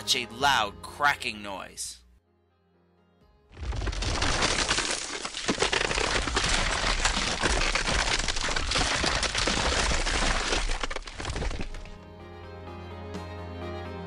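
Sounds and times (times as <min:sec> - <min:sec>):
ice cracking and crashing: 0:03.6 - 0:12.0
ice splashing into water: 0:03.6 - 0:12.0.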